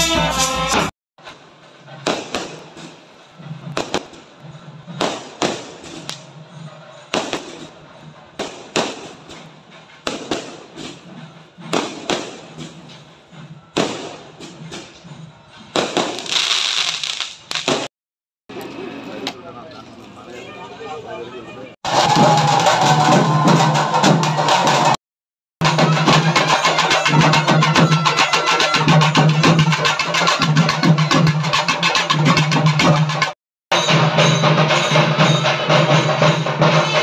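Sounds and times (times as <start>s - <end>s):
drum band: 0.0s - 0.9s, 1.9s - 6.5s, 21.8s - 25.0s, 25.6s - 37.0s
fireworks crackling: 1.2s - 6.4s, 7.0s - 7.8s, 8.4s - 11.1s, 11.7s - 13.2s, 15.7s - 17.9s
fireworks bangs: 1.2s - 13.2s, 13.8s - 14.9s, 15.7s - 17.9s.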